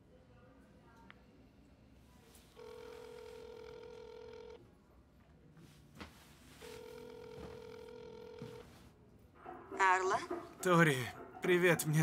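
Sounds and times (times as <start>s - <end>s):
phone ringback tone: 2.6s - 4.6s, 6.6s - 8.8s.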